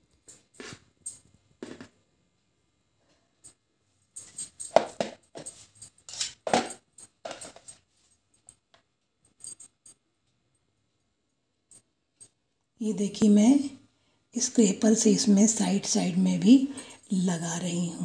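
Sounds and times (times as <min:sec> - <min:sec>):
metal knife scraping a plate: 0:04.2 - 0:06.6.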